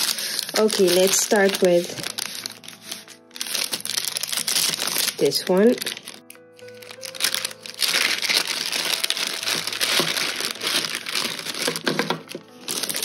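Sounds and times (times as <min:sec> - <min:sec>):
tissue paper crinkling: 0:00.0 - 0:13.0.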